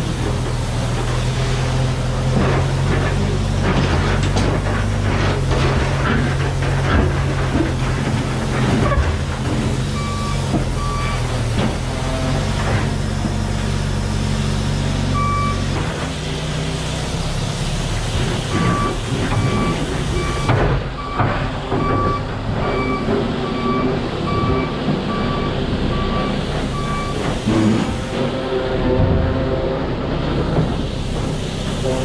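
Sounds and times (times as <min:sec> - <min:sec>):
diesel engine running under load: 0:00.0 - 0:32.0
reversing alarm beeping: 0:09.9 - 0:11.3, 0:15.1 - 0:15.7, 0:18.5 - 0:27.7.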